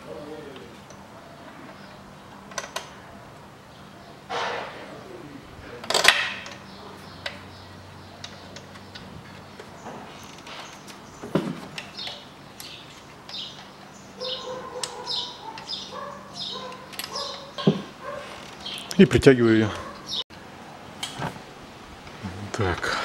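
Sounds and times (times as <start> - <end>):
bird chirping: 1.0 - 2.5, 3.6 - 20.2
hand tools clicking: 16.6 - 17.7
tool knock: 17.6 - 17.9.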